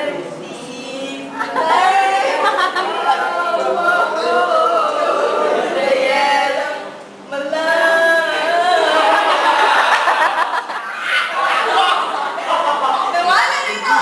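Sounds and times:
group singing a cappella: 0:00.0 - 0:12.9.

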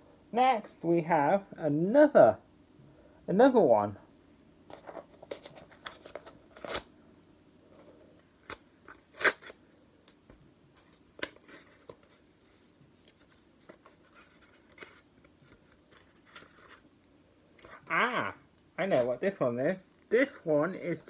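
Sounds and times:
paper and cardboard rustling: 0:04.7 - 0:06.8, 0:10.8 - 0:16.9.

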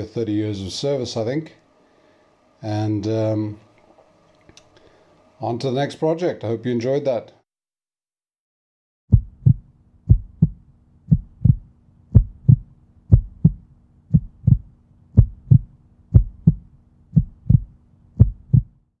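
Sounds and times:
faint low hum: 0:09.1 - 0:18.9
heartbeat thumps: 0:09.1 - 0:18.9.

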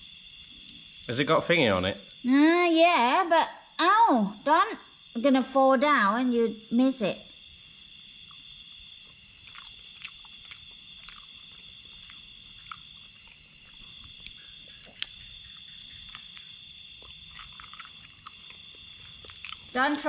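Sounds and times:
night insects chorus: 0:00.0 - 0:20.0
shell being bitten and chewed: 0:08.2 - 0:20.0.

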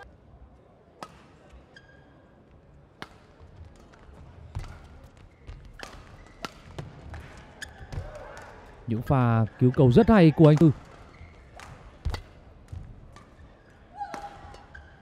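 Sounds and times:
shoe squeaks on court floor: 0:01.7 - 0:02.2
racket hitting shuttlecock: 0:10.4 - 0:13.4, 0:14.0 - 0:14.9.

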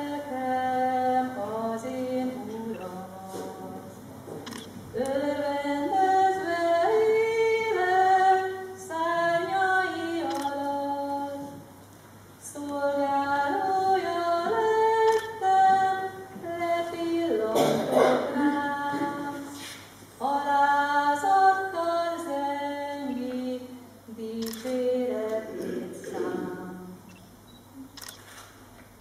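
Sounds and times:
women singing unaccompanied: 0:00.0 - 0:04.0, 0:04.9 - 0:11.7, 0:12.4 - 0:19.6, 0:20.2 - 0:27.1.

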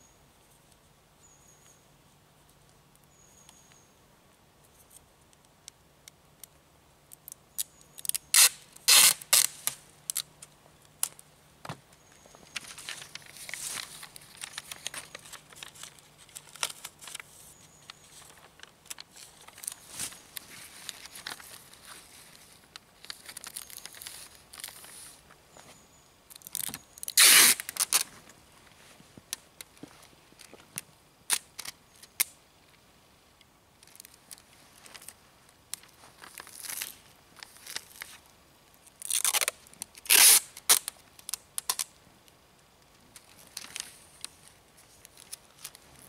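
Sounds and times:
tape crackling: 0:04.7 - 0:32.4, 0:33.7 - 0:46.0
tape ripping off roll: 0:08.0 - 0:10.3, 0:26.3 - 0:28.1, 0:39.0 - 0:41.9
paper rustling and crinkling: 0:12.3 - 0:29.0, 0:33.8 - 0:38.2, 0:43.2 - 0:46.0.

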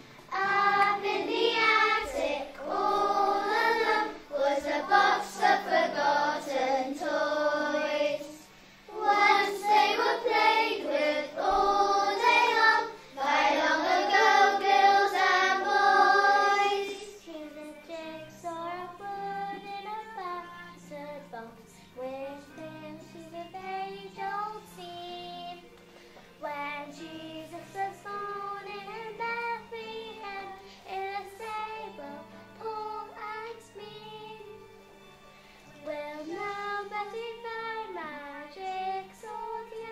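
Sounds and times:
children singing: 0:00.0 - 0:20.5
musical accompaniment: 0:00.0 - 0:39.9.

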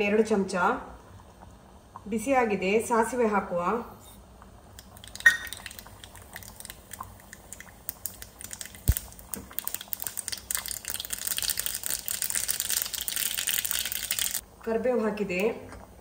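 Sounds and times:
mustard seeds popping in oil: 0:04.7 - 0:14.4.

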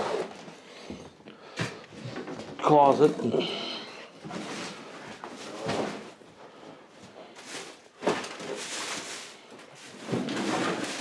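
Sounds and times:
rustling of objects: 0:00.0 - 0:11.0.

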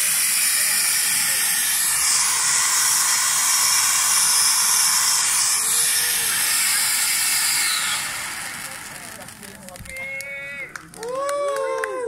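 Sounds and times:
firework fountain hissing: 0:00.0 - 0:11.4.

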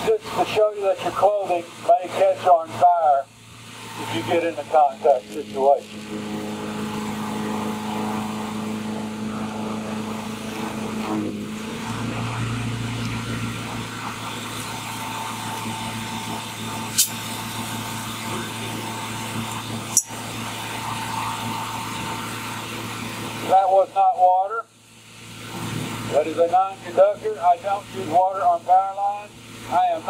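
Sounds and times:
electrical hum over hiss: 0:00.0 - 0:30.0
sharp electrical cracks: 0:12.9 - 0:18.2.

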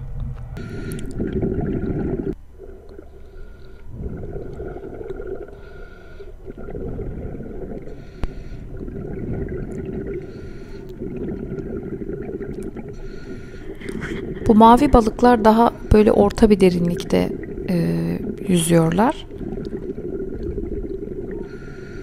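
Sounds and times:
faint steady whine: 0:00.0 - 0:22.0
underwater rushing rumble: 0:00.6 - 0:02.8, 0:03.9 - 0:05.7, 0:06.4 - 0:16.0, 0:16.6 - 0:21.6.

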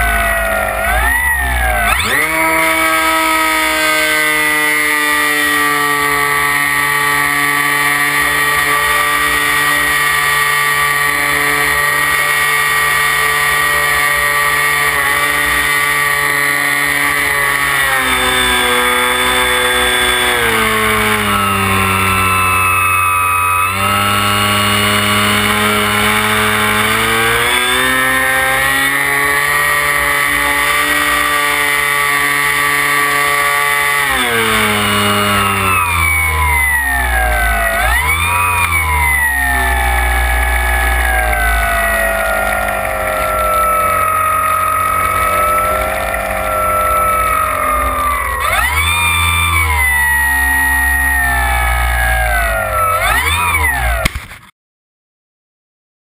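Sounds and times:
electric motor whine: 0:00.0 - 0:54.4.

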